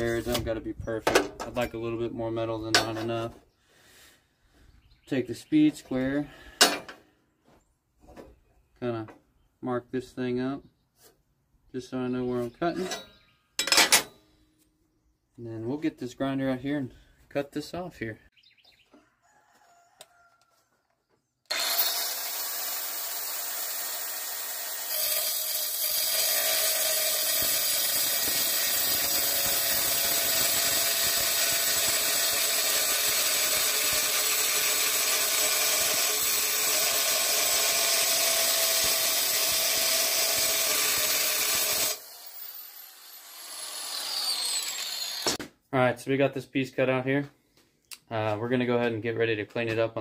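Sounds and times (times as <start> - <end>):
angle grinder cutting metal: 21.5 - 45.4
angle grinder spinning: 21.5 - 45.4.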